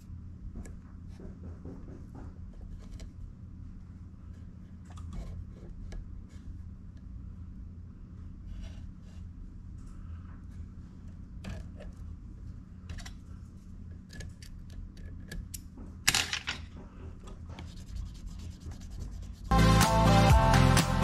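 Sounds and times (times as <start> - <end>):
low background hum: 0.0 - 19.6
tool rubbing along thread wrap: 17.2 - 19.6
music: 19.5 - 21.0.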